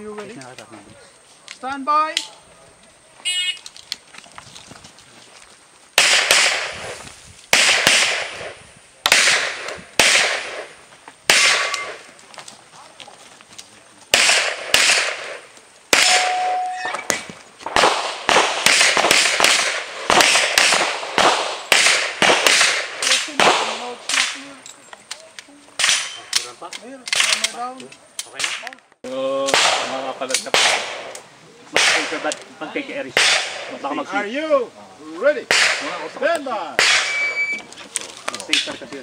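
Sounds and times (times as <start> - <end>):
pistol shots echoing: 6.0 - 6.8, 7.5 - 10.7, 11.3 - 12.0, 14.1 - 24.4, 29.5 - 32.3, 33.2 - 33.7, 35.5 - 36.1, 36.8 - 37.4.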